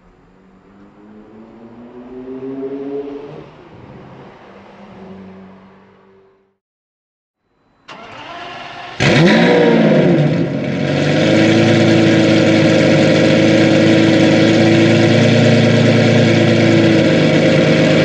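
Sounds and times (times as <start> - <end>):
car engine starting and revving: 0.2 - 6.2, 7.9 - 18.0
loud engine idle: 10.5 - 18.0.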